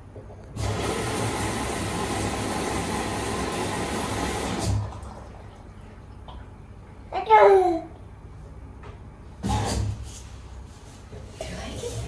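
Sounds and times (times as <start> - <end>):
water spraying into washing machine: 0.6 - 5.5.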